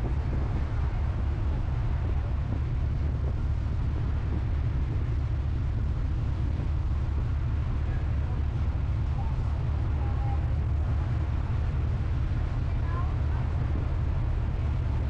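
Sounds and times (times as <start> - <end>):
ferry engine rumble: 0.0 - 15.0
wind buffeting microphone: 0.0 - 15.0.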